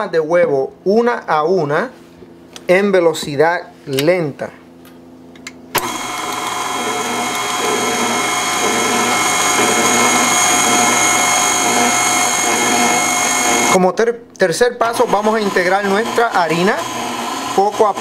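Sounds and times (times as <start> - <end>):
mixer motor whining: 5.7 - 13.8, 14.8 - 18.0.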